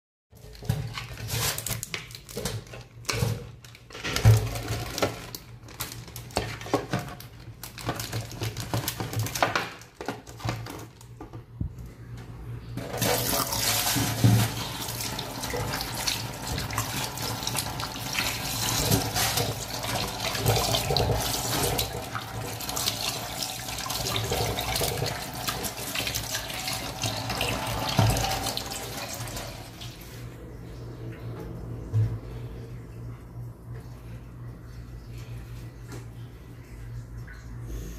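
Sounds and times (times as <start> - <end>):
tap water running into sink: 12.8 - 30.2.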